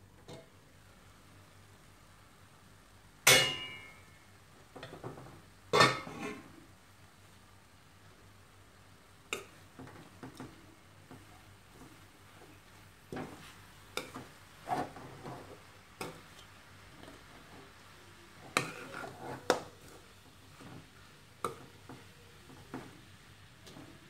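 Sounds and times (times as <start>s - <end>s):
spatula scraping stir-fry in pan: 13.2s - 16.4s, 18.4s - 20.9s.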